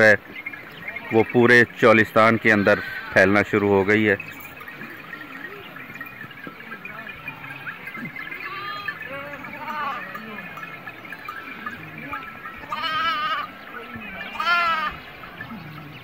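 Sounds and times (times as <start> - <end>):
close quavering bleats: 0.0 - 16.0
sheep and goats bleating: 0.0 - 16.0.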